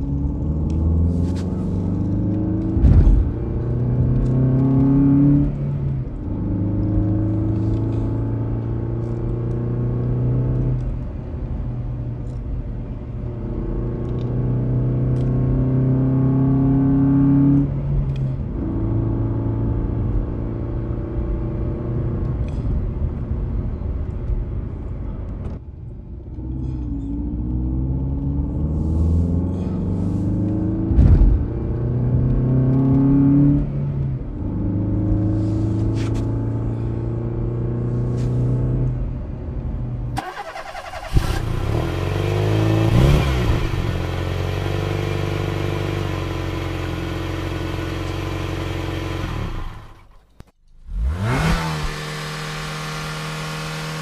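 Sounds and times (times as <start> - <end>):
car engine revving: 0.0 - 10.8, 40.2 - 50.1, 50.8 - 54.0.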